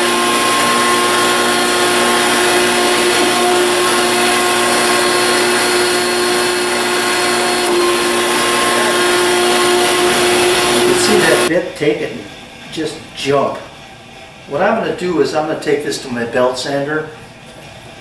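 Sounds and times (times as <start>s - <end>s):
router motor whine: 0.0s - 11.5s.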